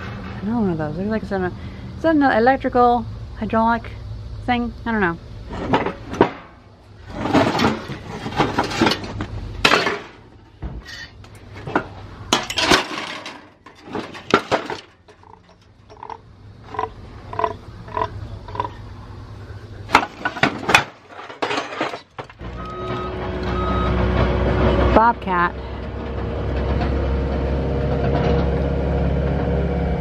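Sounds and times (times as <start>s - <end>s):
metal scrap clanking: 5.5s - 16.2s, 19.9s - 22.5s.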